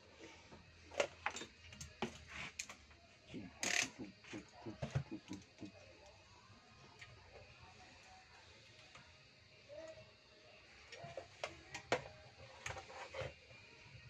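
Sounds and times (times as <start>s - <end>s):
tools and cables clicking: 3.6s - 4.1s.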